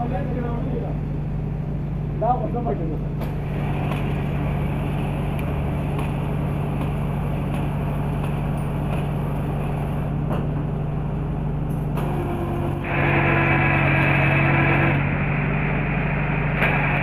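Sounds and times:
power drill running: 12.1 - 15.5.

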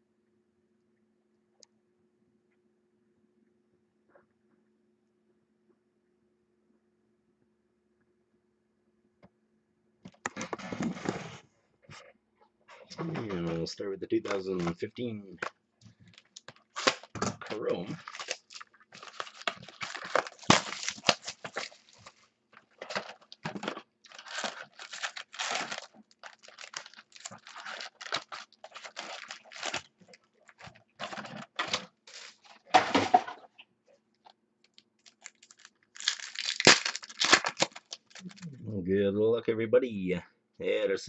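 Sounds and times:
wrapping and cardboard tearing: 16.1 - 32.7, 35.0 - 38.4.

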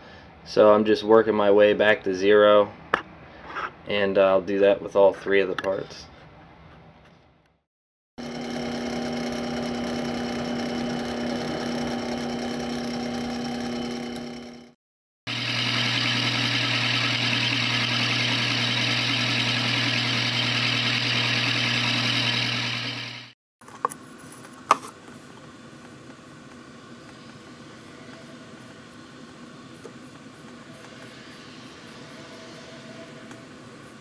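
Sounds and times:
milling machine cutting steel: 8.2 - 23.3.

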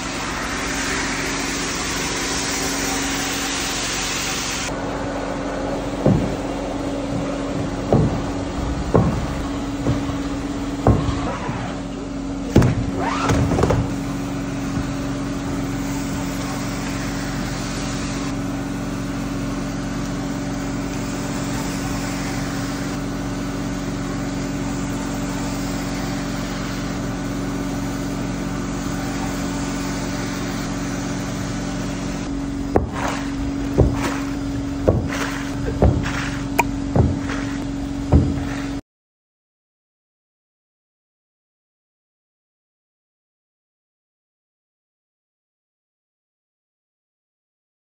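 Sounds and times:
floor scrubbing machine humming: 0.0 - 38.8
sharp knocks: 6.0 - 11.4, 12.5 - 13.9, 32.7 - 38.7
squeegee pushing water: 32.9 - 37.7.

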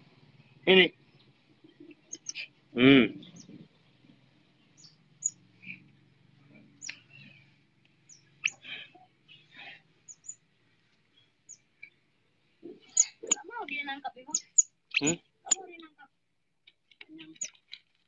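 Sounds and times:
otter chirping: 0.4 - 10.5, 11.1 - 16.0
otter squeaky calls: 1.1 - 3.7, 4.7 - 5.9, 6.6 - 7.4, 8.1 - 9.5, 10.1 - 10.4, 12.6 - 13.6, 14.2 - 16.0.

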